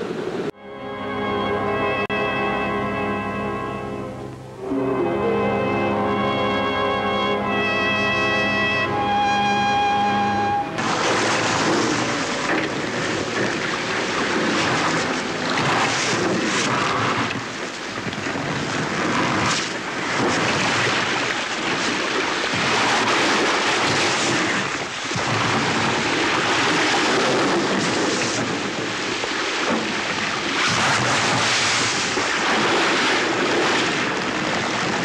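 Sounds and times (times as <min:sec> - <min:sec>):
ice grinding against hull: 0:10.8 - 0:35.0.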